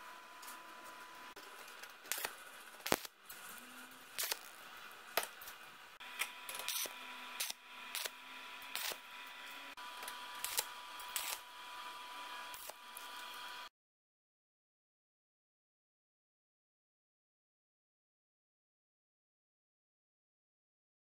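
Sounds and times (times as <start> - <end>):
arc welding hiss and buzz: 0.0 - 13.7
welding crackles and pops: 1.4 - 5.6, 6.2 - 11.5, 12.5 - 13.6.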